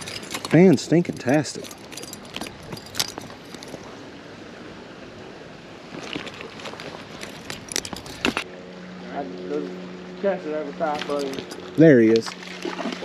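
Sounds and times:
clicks and rattles from handling: 0.0 - 3.9, 6.2 - 8.4
creek flowing: 0.0 - 13.0.

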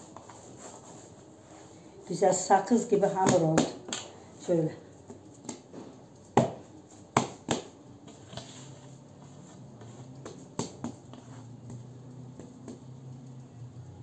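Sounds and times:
dough squelching: 2.2 - 14.0
hands slapping dough: 3.1 - 4.1, 5.0 - 8.6, 9.8 - 13.4.

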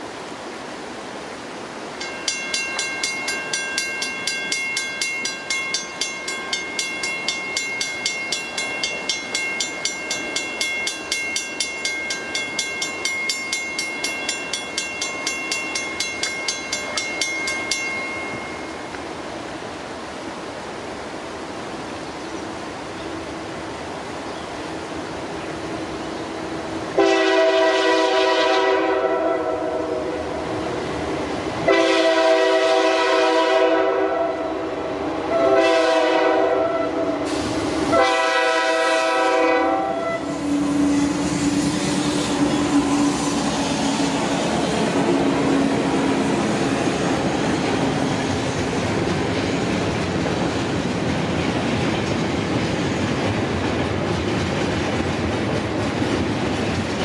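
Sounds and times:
train wheels clacking on rails: 2.0 - 19.1, 40.2 - 57.0
locomotive air horn: 27.0 - 30.1, 31.7 - 34.6, 35.3 - 43.2.

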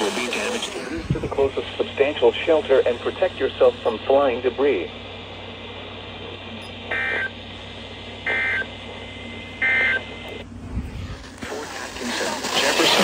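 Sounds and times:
faint radio hiss: 0.0 - 10.4, 11.0 - 13.0
low rumble: 10.4 - 11.4.

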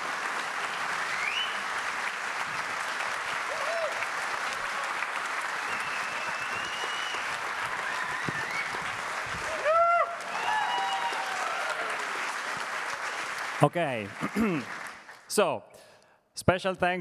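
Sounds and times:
audience applauding: 0.0 - 15.4
whoops and cheers: 3.4 - 12.3.

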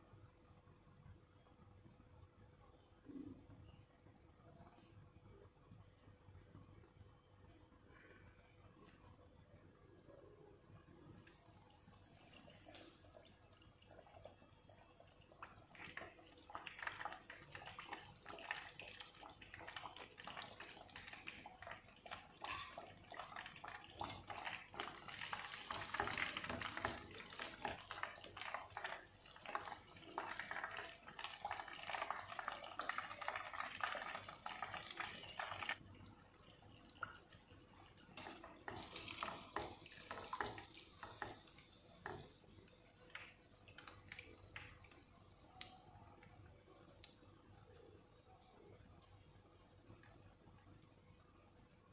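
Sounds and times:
deep-frying sizzle: 11.2 - 50.8.

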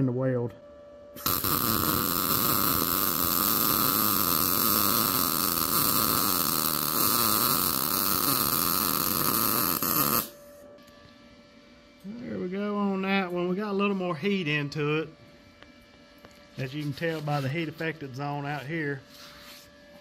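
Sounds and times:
welding arc: 1.2 - 10.4.

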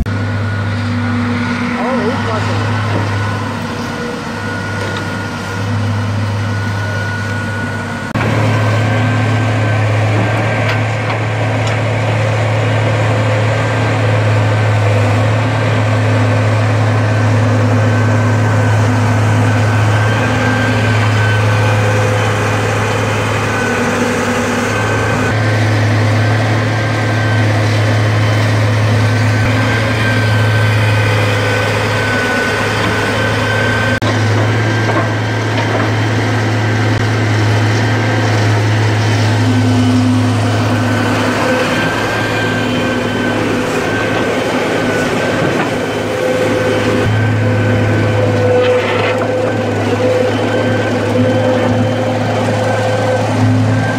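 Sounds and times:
excavator diesel engine: 0.0 - 53.9
thin high whine: 36.7 - 53.9.

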